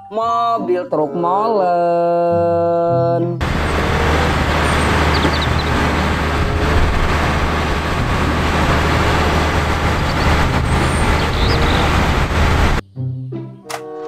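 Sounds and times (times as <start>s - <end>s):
diesel truck engine rumbling: 3.4s - 12.8s.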